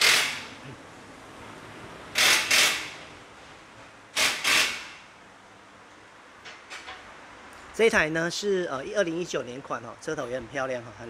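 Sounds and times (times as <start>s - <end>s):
workshop tool mechanical bursts: 0.0s - 0.6s, 2.1s - 3.1s, 4.1s - 5.1s.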